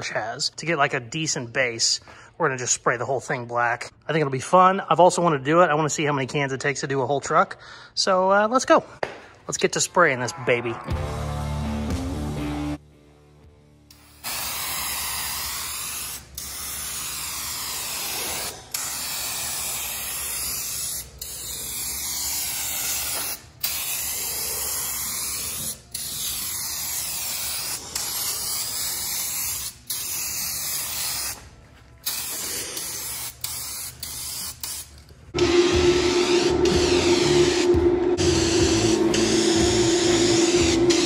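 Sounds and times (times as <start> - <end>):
spray paint can hissing: 13.9 - 31.4, 32.0 - 35.0.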